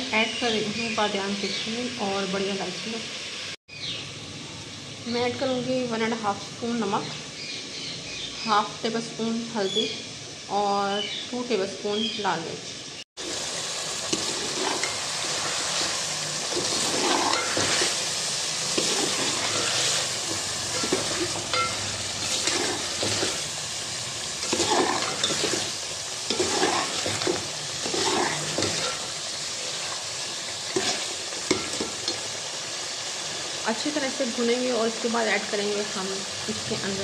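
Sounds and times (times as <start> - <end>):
food sizzling in oil: 0.0 - 37.0
spoon scraping a metal pot: 14.1 - 18.0, 18.7 - 23.5, 24.4 - 29.2, 30.7 - 32.2.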